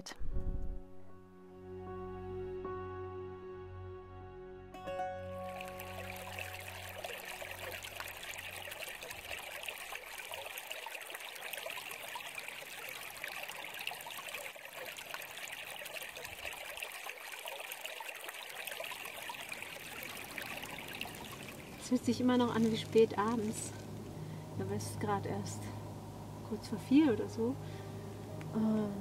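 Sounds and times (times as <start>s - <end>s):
soft music: 0.0s - 9.7s, 21.8s - 29.0s
stream trickling: 5.2s - 29.0s.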